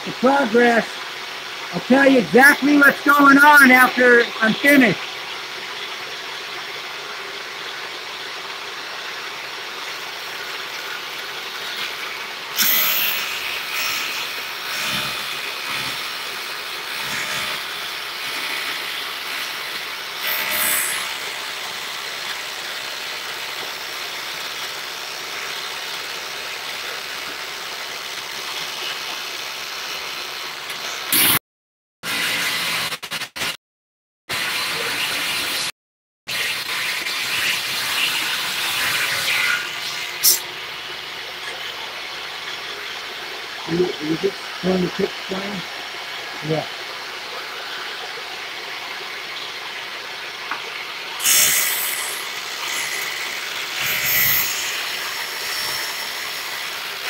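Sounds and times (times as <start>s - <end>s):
table saw cutting metal: 11.6s - 23.6s, 30.7s - 31.4s, 32.0s - 33.6s, 34.3s - 35.7s, 36.3s - 40.4s, 51.2s - 57.0s.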